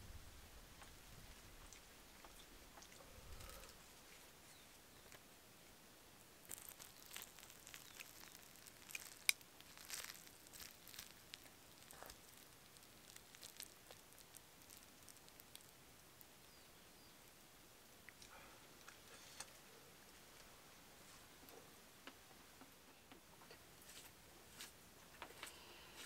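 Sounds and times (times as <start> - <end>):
chopsticks clicking on bamboo: 6.5 - 12.2.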